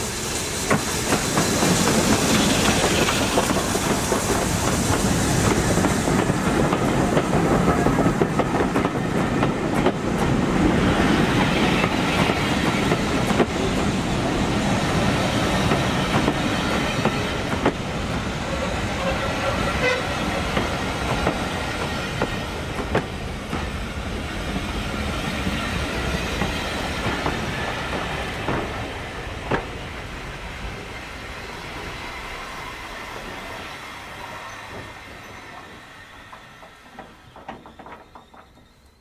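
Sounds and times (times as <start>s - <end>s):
train wheels rumbling on rail: 0.0s - 39.0s
wheels clicking over rail joints: 34.7s - 39.0s.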